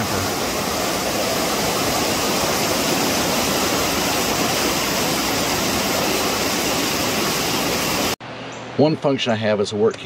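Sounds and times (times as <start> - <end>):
creek water rushing over rocks: 0.0 - 8.2.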